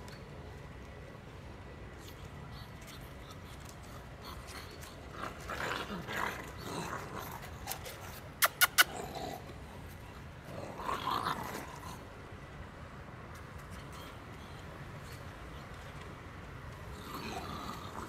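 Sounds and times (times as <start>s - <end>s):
puppies growling: 2.5s - 12.2s, 16.8s - 18.0s.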